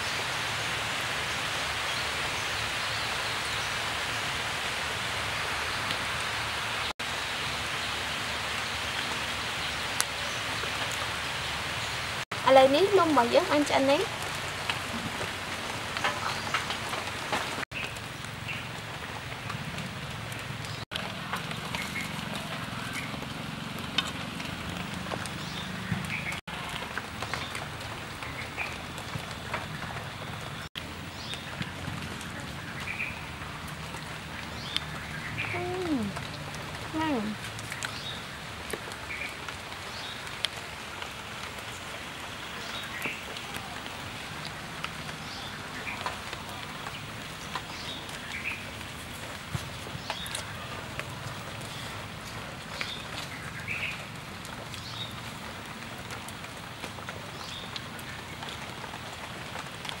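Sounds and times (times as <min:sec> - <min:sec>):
outdoor background hiss: 0:00.0 - 0:20.9.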